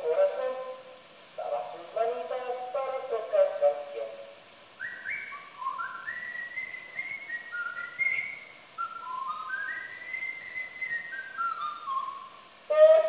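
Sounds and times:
person whistling a slow melody: 0:04.8 - 0:13.0.

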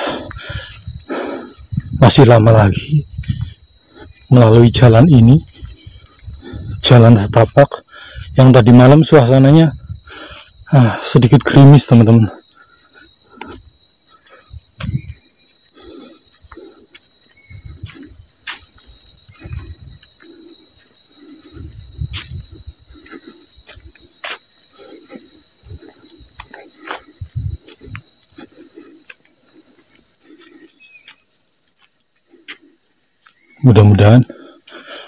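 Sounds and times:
footsteps on dirt path: 0:00.0 - 0:04.4, 0:12.4 - 0:33.5
insects droning: 0:00.0 - 0:35.0.

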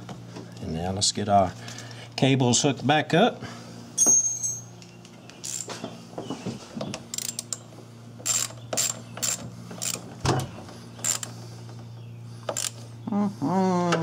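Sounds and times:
steady low hum: 0:00.0 - 0:14.0
ratchet wrench clicking: 0:07.1 - 0:07.6, 0:08.2 - 0:10.0, 0:11.0 - 0:11.3, 0:12.5 - 0:12.8.

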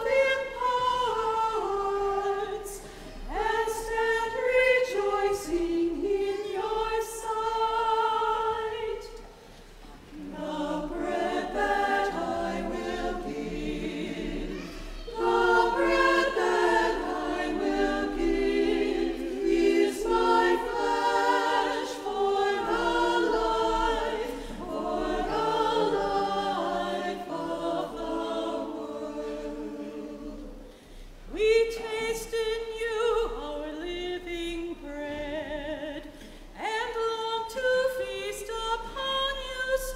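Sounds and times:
choir singing: 0:00.0 - 0:09.3, 0:09.9 - 0:30.7.

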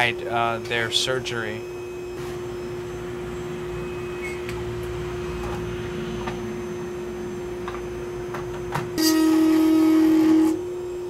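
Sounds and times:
dental drill humming: 0:09.0 - 0:11.0.

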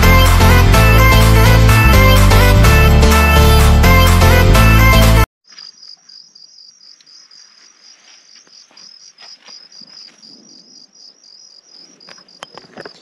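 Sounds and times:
insects chirping: 0:05.4 - 0:13.0
faint scuffs and rustles: 0:07.3 - 0:10.4.

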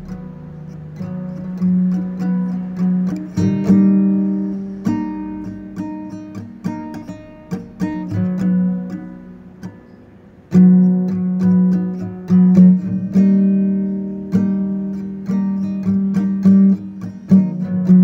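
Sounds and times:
acoustic guitar strumming: 0:00.0 - 0:18.0.

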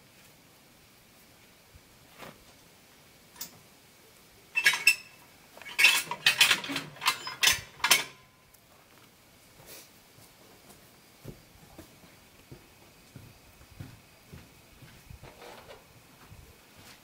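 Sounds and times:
metallic ring: 0:04.6 - 0:08.4
steel hitch parts clanking: 0:04.6 - 0:08.4.

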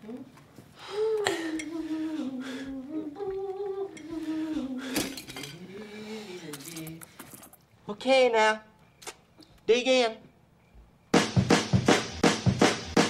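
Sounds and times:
person humming: 0:00.0 - 0:07.0
utensils clinking against cookware: 0:04.9 - 0:05.7.

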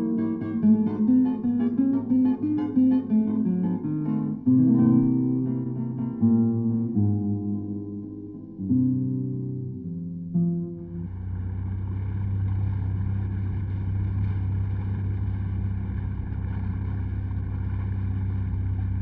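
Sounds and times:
plucked guitar note: 0:00.0 - 0:19.0
boat engine humming: 0:10.8 - 0:19.0.

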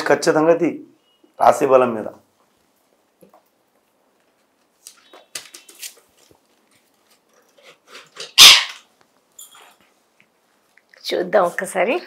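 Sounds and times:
parakeet calls and squawk: 0:08.3 - 0:08.8.

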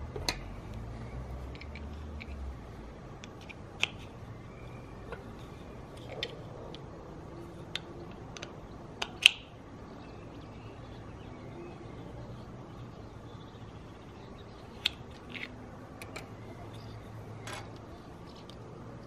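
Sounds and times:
plastic parts clicking together: 0:01.4 - 0:02.4, 0:14.8 - 0:16.3.

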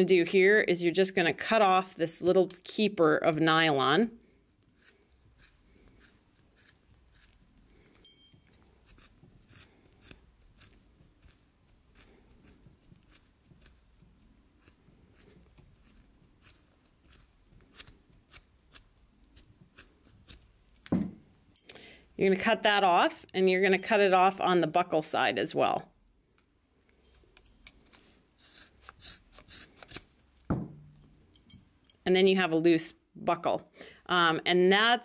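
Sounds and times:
scissors snipping webbing: 0:04.7 - 0:20.9, 0:27.3 - 0:30.5.

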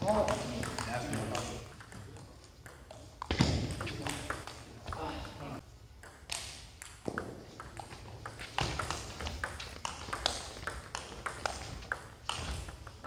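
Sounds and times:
table tennis ball clicking: 0:06.0 - 0:12.9.

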